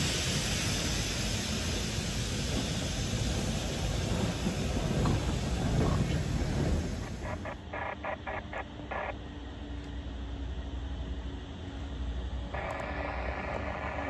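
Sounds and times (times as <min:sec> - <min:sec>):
train wheels rumbling on rails: 0:00.0 - 0:07.6.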